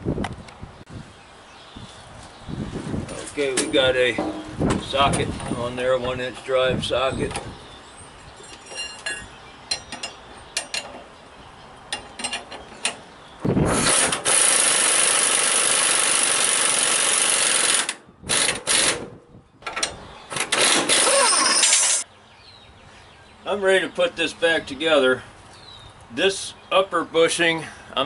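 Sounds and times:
impact wrench running: 13.8s - 19.0s.

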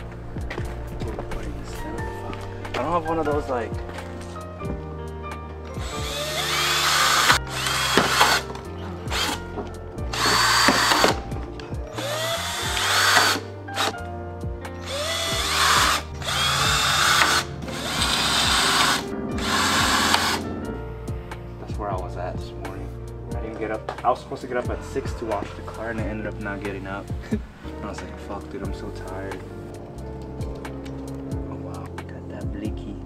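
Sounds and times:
power drill whining: 5.8s - 11.3s, 11.9s - 14.0s, 14.8s - 20.5s.

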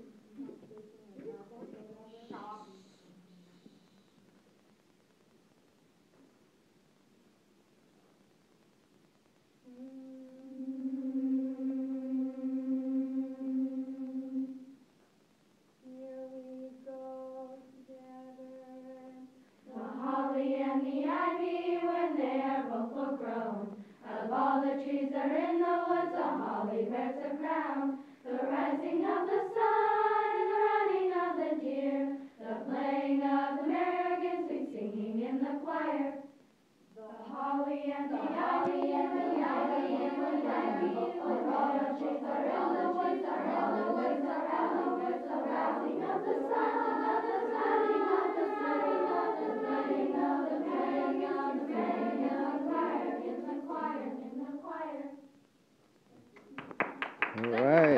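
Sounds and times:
children's choir singing: 9.7s - 14.8s, 15.9s - 36.3s, 37.0s - 55.3s.

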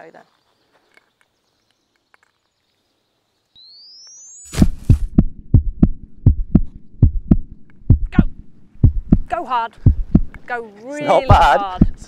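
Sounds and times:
low thudding heartbeat beat: 4.6s - 10.5s, 11.2s - 12.0s.

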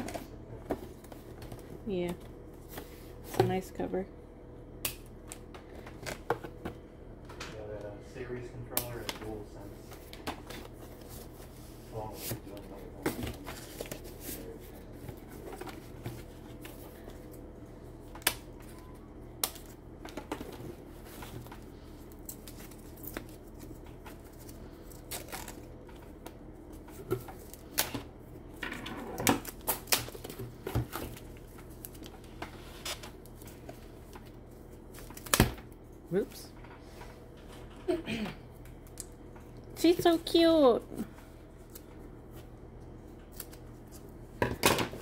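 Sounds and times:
paper rustling and crinkling: 9.2s - 17.4s.

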